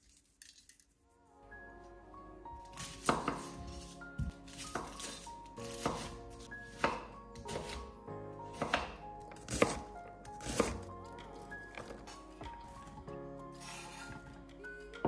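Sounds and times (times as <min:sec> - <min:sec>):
soft background music: 0:01.0 - 0:15.0
knife chopping on cutting board: 0:02.8 - 0:03.6, 0:04.2 - 0:06.2, 0:06.8 - 0:07.8, 0:08.5 - 0:10.9.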